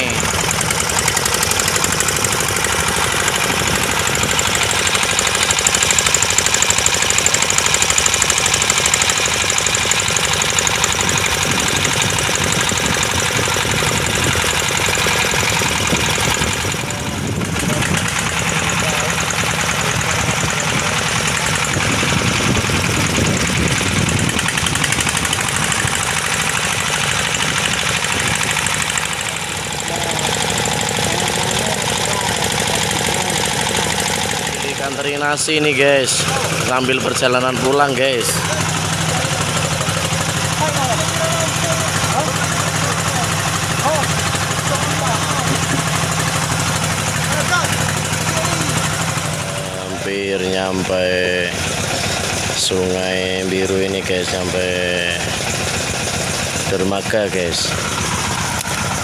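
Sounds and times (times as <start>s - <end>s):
boat engine running: 0.0s - 59.0s
wind: 0.0s - 59.0s.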